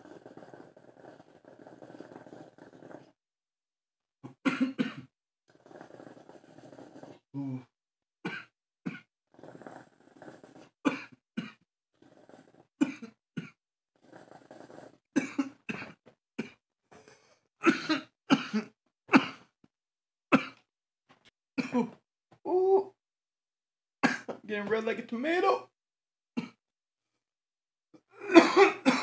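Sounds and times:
man coughing hard: 0:04.4 - 0:05.1, 0:17.6 - 0:19.4, 0:21.6 - 0:22.0, 0:28.2 - 0:29.0.

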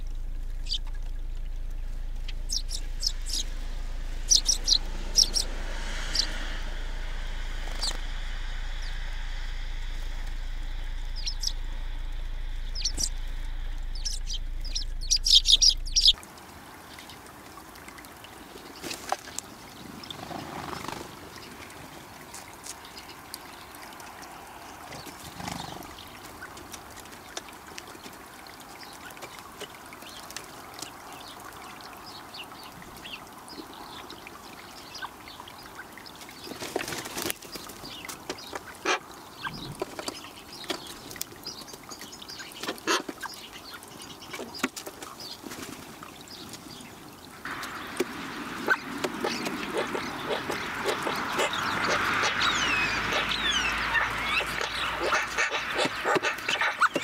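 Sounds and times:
sparrows chirping: 0:00.0 - 0:16.2, 0:47.6 - 0:57.0
outdoor ambience: 0:00.0 - 0:57.0.

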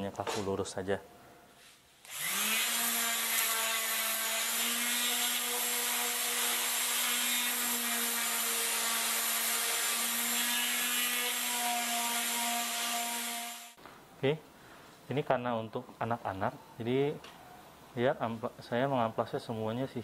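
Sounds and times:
electric sander motor hum: 0:02.1 - 0:08.5.

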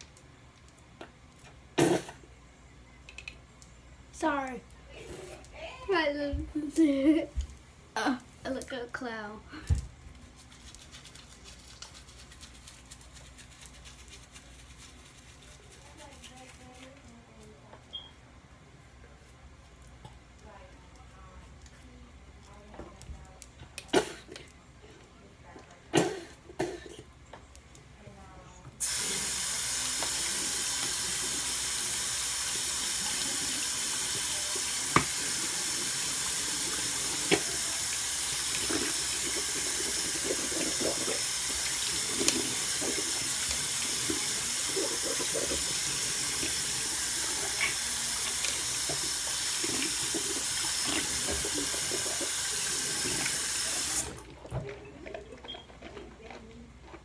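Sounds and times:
sink tap running: 0:28.8 - 0:54.3.

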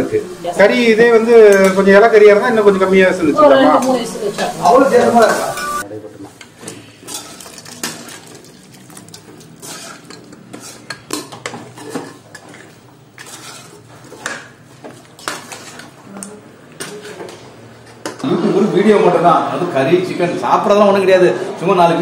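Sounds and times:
metal ladle clinking and scraping: 0:07.0 - 0:14.4.

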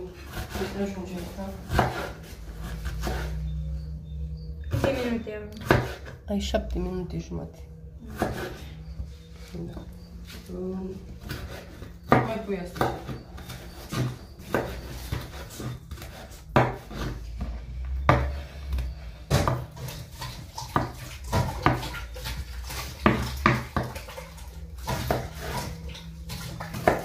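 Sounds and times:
steady low hum: 0:00.0 - 0:20.2.

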